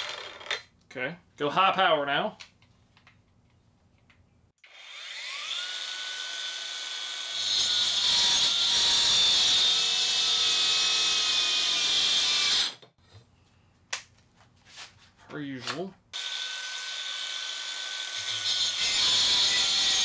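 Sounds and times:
angle grinder cutting wood: 4.6 - 12.8, 16.2 - 20.0.

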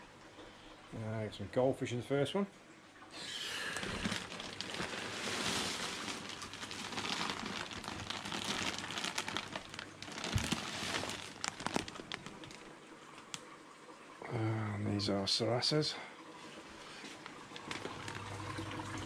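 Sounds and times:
plastic packaging crinkling: 3.6 - 13.4, 17.6 - 18.5.

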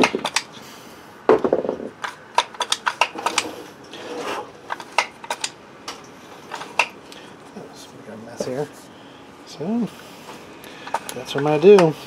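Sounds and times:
metallic clicks and clatter: 2.0 - 3.5, 4.7 - 6.9
short scraping rubs: 3.2 - 4.5.

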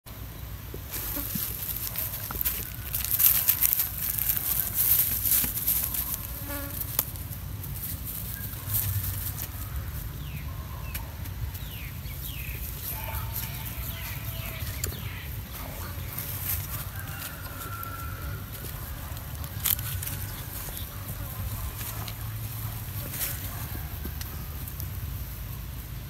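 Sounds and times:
steady low rumble: 0.1 - 26.0
insects buzzing: 0.7 - 8.5.

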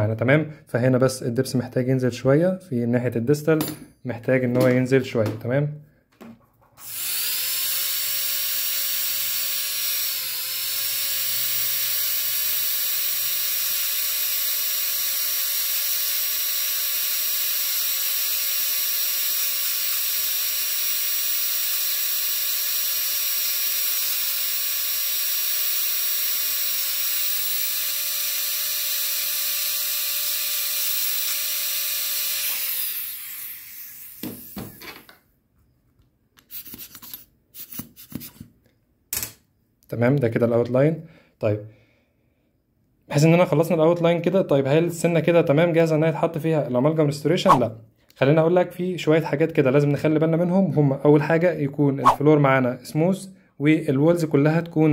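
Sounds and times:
dental drill whining: 6.8 - 35.0, 36.4 - 38.3.

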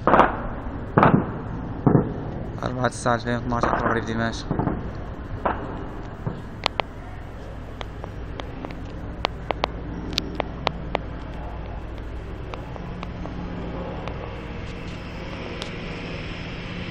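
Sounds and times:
gunfire cracks: 0.0 - 2.4
helicopter drone: 0.0 - 16.9.

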